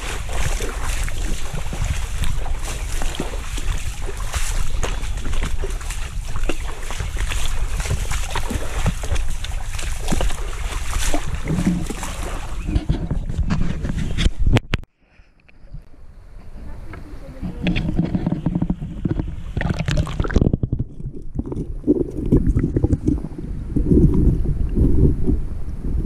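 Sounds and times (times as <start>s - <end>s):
water sloshing and splashing: 0.0s - 14.4s, 17.2s - 23.4s
wind rumble on microphone: 0.0s - 14.9s, 15.6s - 26.0s.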